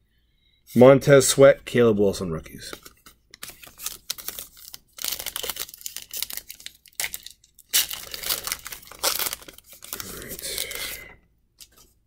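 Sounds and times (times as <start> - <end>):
cards rustling: 2.6 - 12.0.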